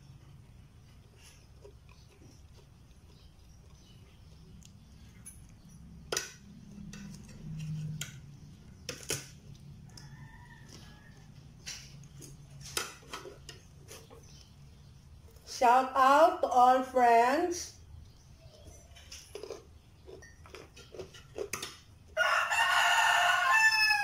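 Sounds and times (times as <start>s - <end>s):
distant rooster crowing: 9.8s - 11.7s, 22.1s - 24.0s.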